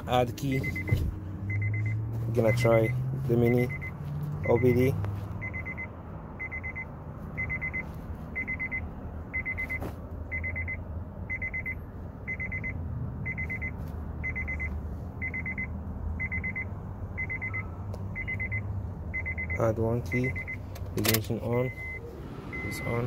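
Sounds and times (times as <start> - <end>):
electronic warning beeper: 0.5 - 4.8, 5.4 - 7.8, 21.6 - 23.0.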